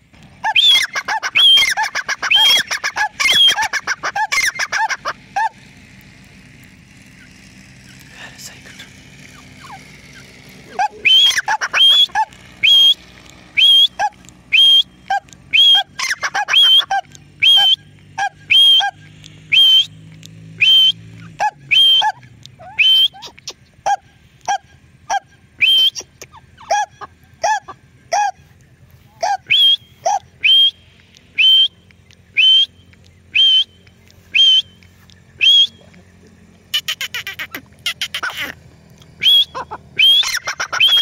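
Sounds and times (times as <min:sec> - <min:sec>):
shrill repeated bird calls: 0:00.3 - 0:05.6, 0:09.2 - 0:41.0.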